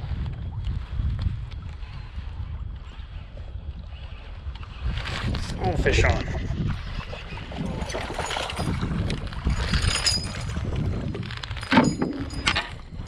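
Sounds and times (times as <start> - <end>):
water splashing and lapping: 0.0 - 13.0
wind rumbling on microphone: 0.0 - 13.0.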